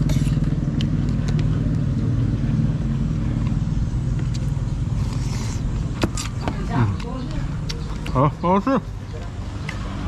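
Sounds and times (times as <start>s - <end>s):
engine idling drone: 0.0s - 6.5s.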